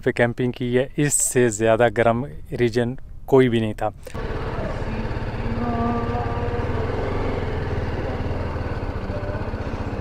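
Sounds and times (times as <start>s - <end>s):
motorcycle engine running: 4.1s - 10.0s.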